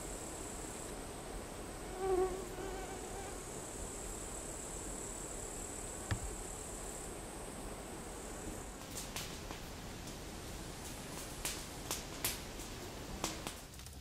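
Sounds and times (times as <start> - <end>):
insects chirring: 0.0 - 13.7
flying insect buzzing: 1.7 - 9.3.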